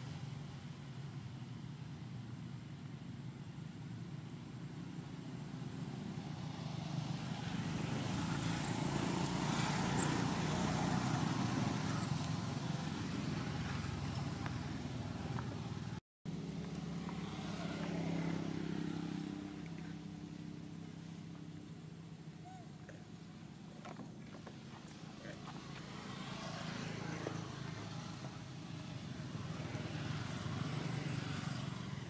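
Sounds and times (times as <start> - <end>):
engine hum: 0.0 - 32.0
vehicle passing by: 5.6 - 22.6, 24.5 - 32.0.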